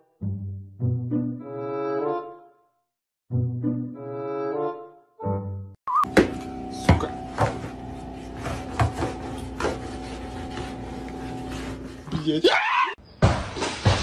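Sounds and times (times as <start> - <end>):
brass music: 0.2 - 2.6
refrigerator hum: 6.1 - 12.9
rod knocking and scraping floor: 8.4 - 10.6.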